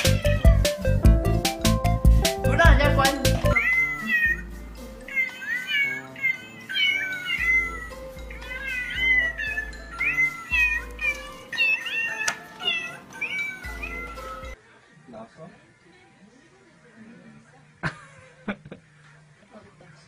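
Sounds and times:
cat meows: 0:00.0 - 0:00.6, 0:03.6 - 0:04.5, 0:05.1 - 0:14.6
music with low bass: 0:00.0 - 0:03.6.

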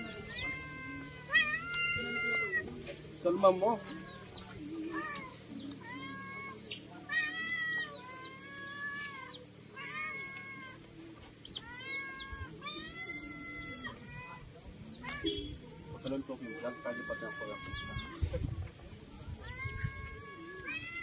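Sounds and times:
cat meowing: 0:00.1 - 0:02.6, 0:05.0 - 0:10.8, 0:11.6 - 0:14.4, 0:19.4 - 0:21.0.

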